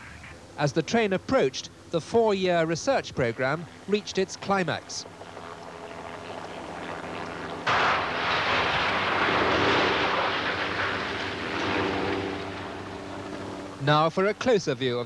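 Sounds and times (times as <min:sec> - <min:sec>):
loud crash: 0:07.7 - 0:12.2.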